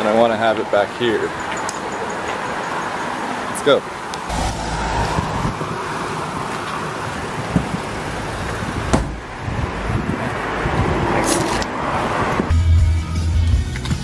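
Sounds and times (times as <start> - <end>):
wind on microphone: 4.3 - 12.5.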